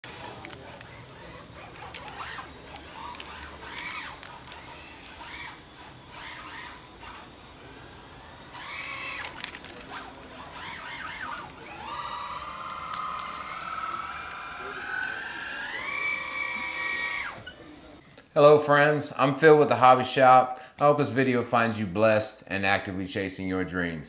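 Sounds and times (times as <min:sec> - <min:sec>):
toy car electric motor whining: 0:00.0 - 0:17.8.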